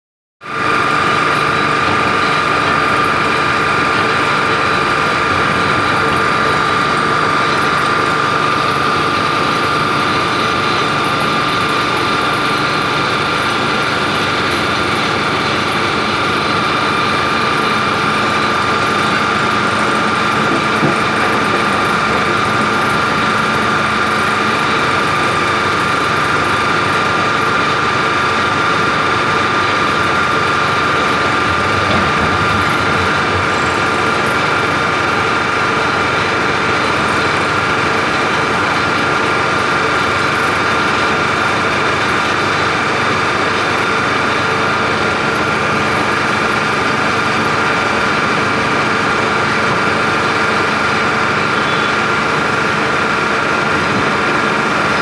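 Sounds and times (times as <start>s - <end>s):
water pump droning: 0.4s - 55.0s
high whine: 29.0s - 37.0s.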